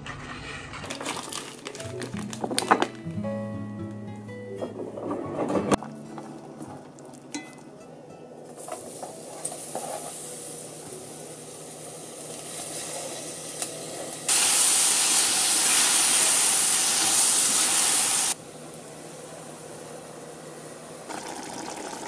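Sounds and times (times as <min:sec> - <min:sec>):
loud sizzle: 0:08.4 - 0:22.0
food frying in a pot: 0:08.5 - 0:22.0.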